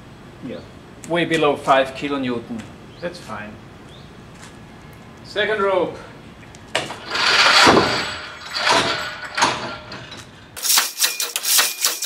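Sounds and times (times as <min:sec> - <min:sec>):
rushing clatter of falling mass: 0:06.9 - 0:12.0.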